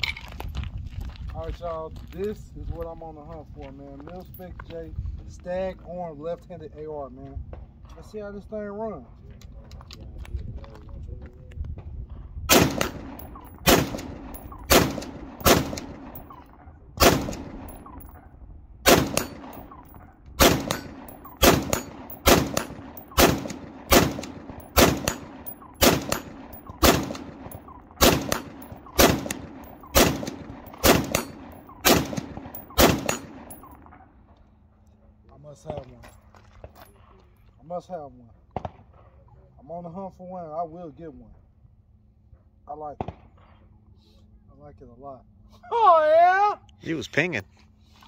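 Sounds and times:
rifle shots: 12.5 - 18.2, 18.8 - 33.9
steel targets ringing: 30.7 - 31.8.

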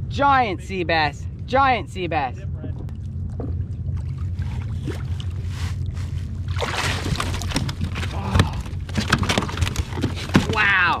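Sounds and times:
low rumble: 0.0 - 11.0
water splashing around kayak: 3.2 - 11.0.

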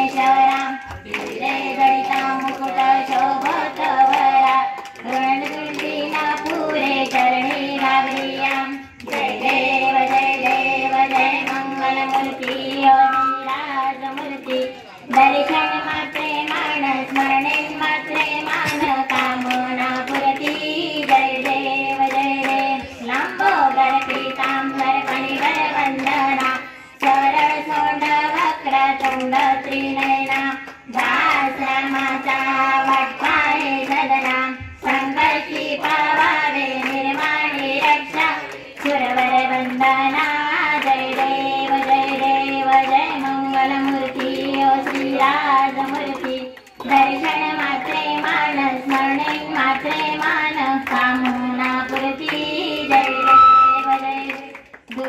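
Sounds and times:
group singing devotional song: 0.0 - 55.0
hands clapping in time: 0.0 - 55.0.

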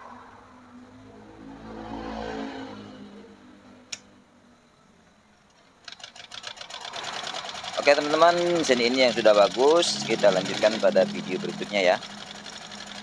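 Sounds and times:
passing engine: 0.0 - 3.9
sewing machine stitching: 5.8 - 13.0.

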